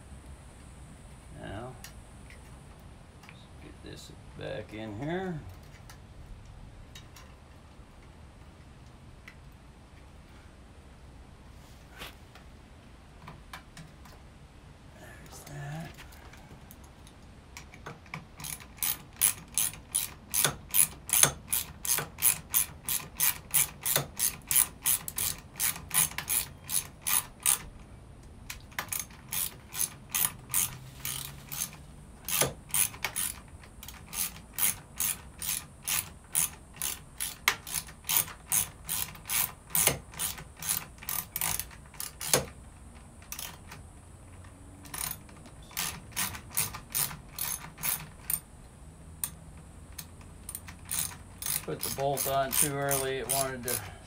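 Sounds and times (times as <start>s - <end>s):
ratchet wrench clicking: 17.6s - 27.8s, 28.5s - 42.6s, 43.2s - 43.8s, 44.4s - 48.4s, 49.2s - 54.0s.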